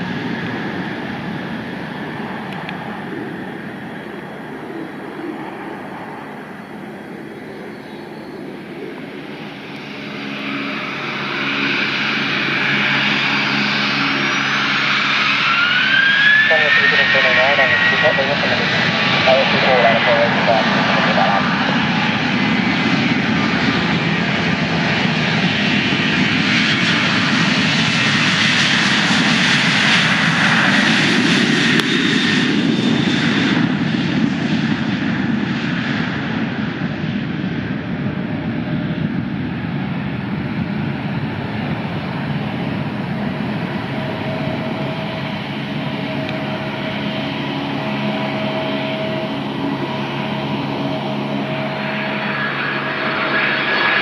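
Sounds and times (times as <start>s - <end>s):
aircraft engines passing: 0.0s - 54.0s
held engine tones: 39.7s - 54.0s.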